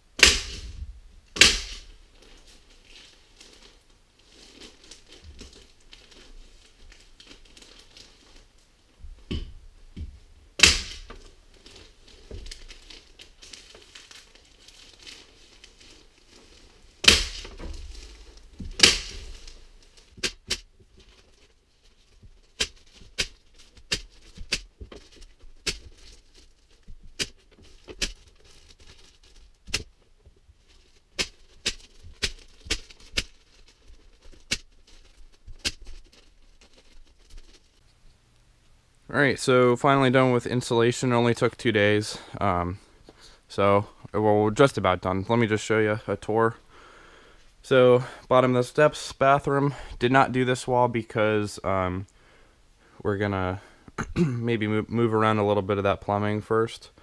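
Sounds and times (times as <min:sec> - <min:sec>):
paper crinkling: 0:01.6 - 0:09.0, 0:10.8 - 0:38.4.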